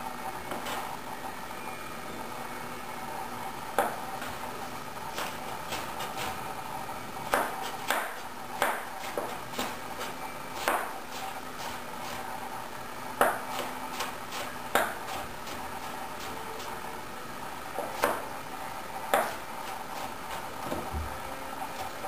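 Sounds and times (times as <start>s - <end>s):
knife chopping on cutting board: 7.3s - 11.8s, 13.2s - 15.6s, 17.8s - 18.2s, 19.1s - 19.4s.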